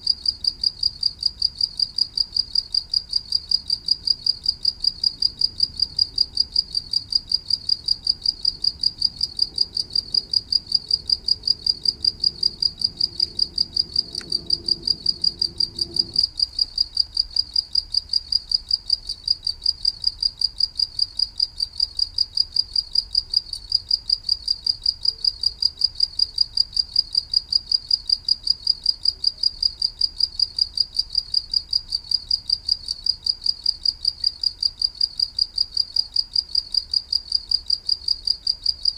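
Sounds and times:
cricket chirping: 0.0s - 38.9s
faint low rumble: 3.7s - 18.2s.

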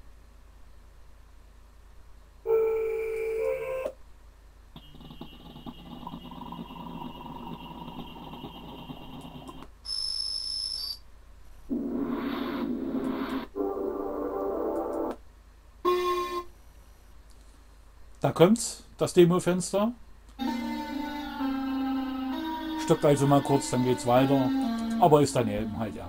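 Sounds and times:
high bright synth tone: 11.7s - 15.1s
loud pitched synth tone: 11.7s - 15.1s
software synthesizer sequence: 11.7s - 15.2s.

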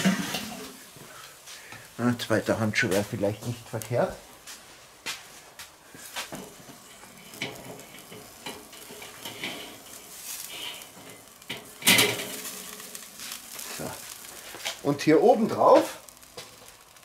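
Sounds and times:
metal basket clattering on grate: 0.0s - 0.7s, 7.2s - 13.0s
burger patties sizzling on a grill: 0.0s - 17.0s
metal basket clinking: 6.4s - 14.4s.

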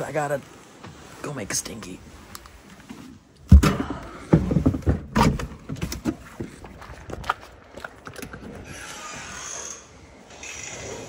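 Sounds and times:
thumps and rustling in a car: 3.5s - 6.6s.

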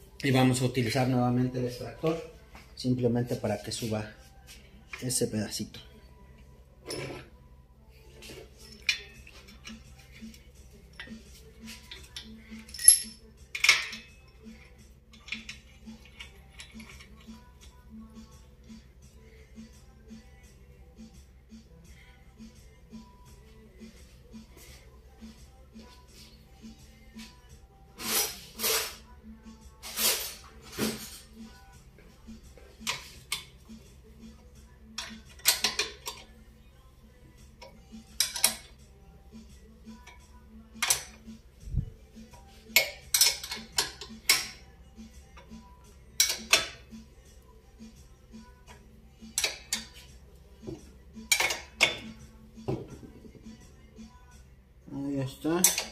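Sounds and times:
steel parts clinking: 8.6s - 17.4s, 34.9s - 36.4s, 37.6s - 38.7s, 42.7s - 44.6s, 46.2s - 46.8s, 51.2s - 52.2s
wrench clicking on metal nut: 35.0s - 36.3s, 37.6s - 38.8s, 40.8s - 41.3s, 42.7s - 44.6s, 46.2s - 46.8s, 48.7s - 50.0s, 51.3s - 52.1s.

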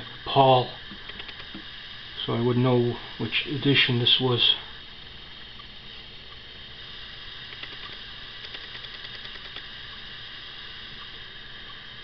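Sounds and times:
steady high hiss: 0.0s - 12.0s
zoom motor ticking: 1.0s - 1.6s, 7.5s - 10.0s.

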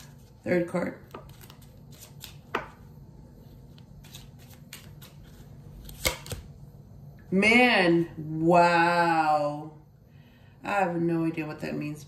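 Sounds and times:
playing cards clicking: 1.1s - 2.8s, 3.8s - 6.5s.

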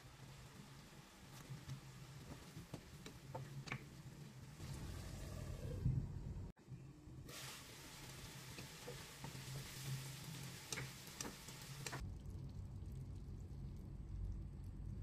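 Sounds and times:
food sizzling in a pan: 0.0s - 5.5s, 7.3s - 12.0s
low hum: 12.0s - 15.0s.

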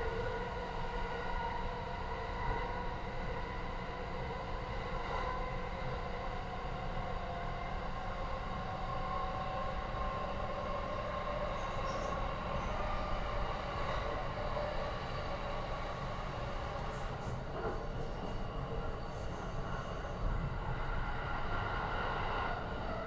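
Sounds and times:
train wheels rumbling on rail: 7.8s - 23.0s.

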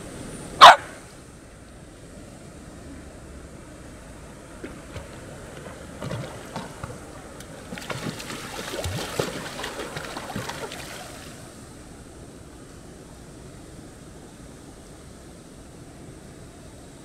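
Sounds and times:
stream rushing: 2.5s - 12.8s
water splashing around legs: 4.6s - 11.5s.

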